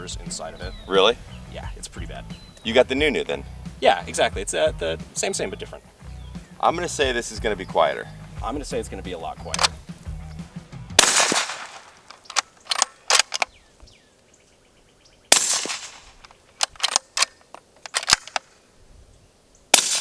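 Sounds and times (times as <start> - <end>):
rifle bolt metallic clicks: 9.5 - 9.8, 11.0 - 13.6, 15.4 - 18.6
suppressed rifle shots: 9.5 - 9.8, 11.0 - 13.5, 15.3 - 18.5, 19.7 - 20.0.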